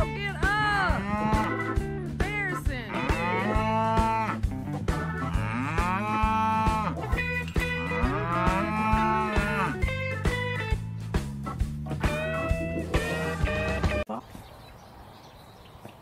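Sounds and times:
guitar music with steady beat: 0:00.0 - 0:14.0
pony groaning: 0:00.9 - 0:01.5, 0:02.9 - 0:04.5, 0:05.1 - 0:07.2, 0:07.8 - 0:09.9.

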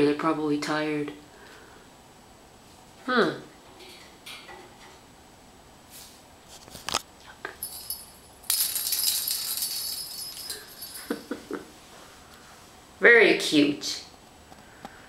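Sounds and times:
small bell jingling: 0:07.6 - 0:11.4.

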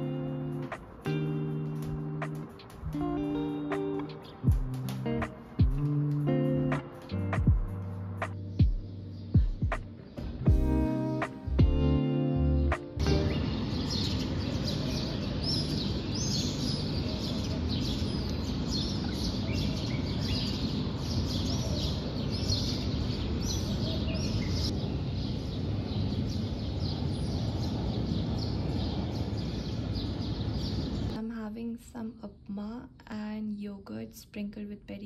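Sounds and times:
small birds chirping: 0:13.0 - 0:31.2.

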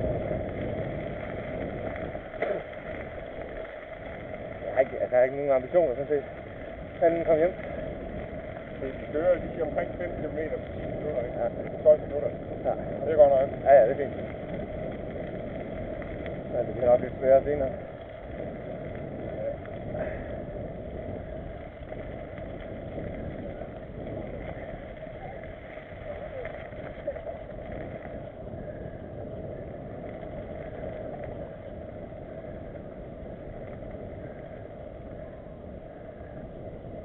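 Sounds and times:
bike tyres rumbling on dirt: 0:00.0 - 0:37.0
wind noise: 0:00.0 - 0:37.0.

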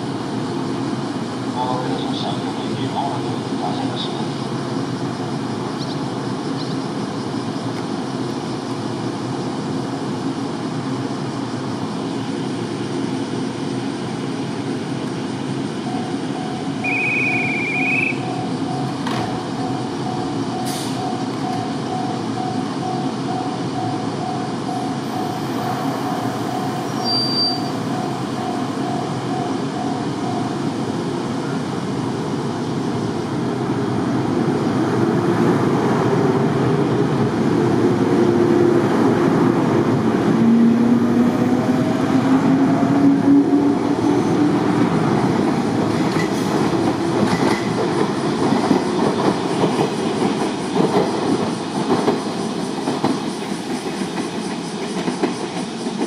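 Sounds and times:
electric train humming: 0:00.0 - 0:56.0
repeating beep: 0:15.9 - 0:19.0
short whistle: 0:16.8 - 0:18.3, 0:27.0 - 0:27.8.

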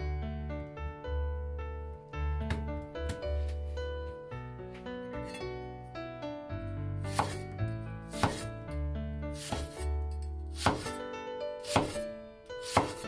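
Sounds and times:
background music: 0:00.0 - 0:13.0
cleaver chopping onion on board: 0:07.1 - 0:07.4, 0:08.2 - 0:08.5, 0:09.4 - 0:09.8, 0:10.5 - 0:11.0, 0:11.6 - 0:12.0, 0:12.6 - 0:13.0.

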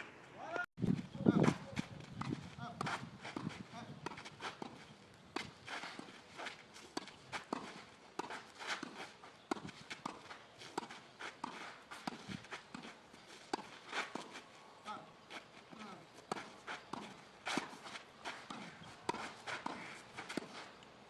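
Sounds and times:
footsteps on tennis court: 0:00.8 - 0:20.8.

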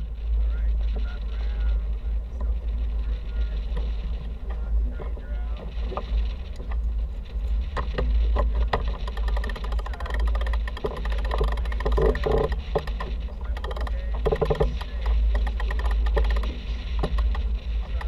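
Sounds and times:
water noise: 0:00.0 - 0:18.0
wind rumbling on microphone: 0:00.0 - 0:18.0
boat gear clicks and knocks: 0:07.7 - 0:18.0.

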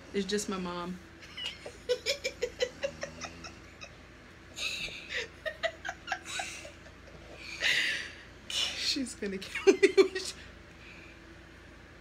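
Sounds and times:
woman and girl laughing hard: 0:01.4 - 0:03.9, 0:04.6 - 0:08.0.

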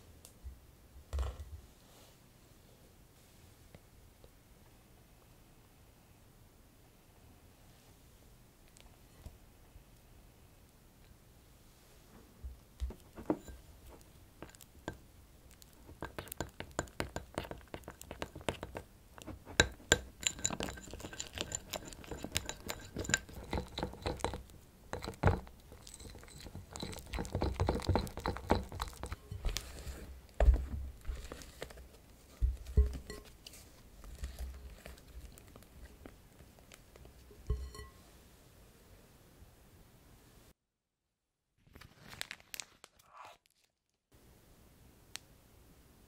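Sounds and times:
spatula stirring meringue: 0:12.4 - 0:38.2
spatula clinking on glass: 0:13.2 - 0:13.6, 0:19.5 - 0:29.6, 0:32.7 - 0:33.4, 0:37.4 - 0:38.0
glass ringing: 0:37.5 - 0:38.0.

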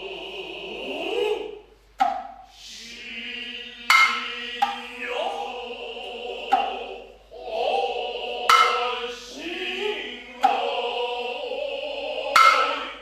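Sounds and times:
drawn-out chanted voices: 0:00.0 - 0:01.8, 0:02.5 - 0:13.0
sustained pitched tones: 0:02.8 - 0:13.0.

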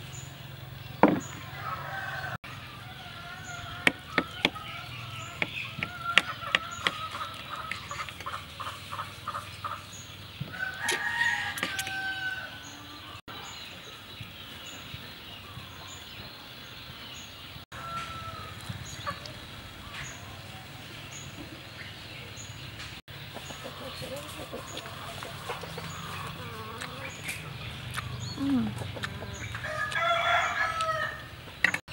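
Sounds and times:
chickens clucking: 0:01.0 - 0:13.3, 0:17.8 - 0:31.9
rooster crowing: 0:01.4 - 0:04.6, 0:10.6 - 0:12.9, 0:29.6 - 0:31.4.

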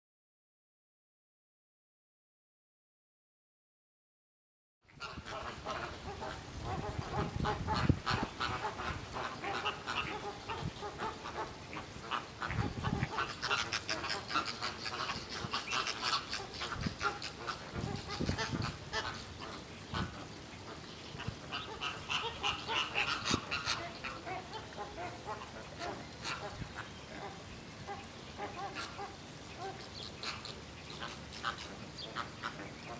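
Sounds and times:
flamingos honking: 0:04.9 - 0:32.9.

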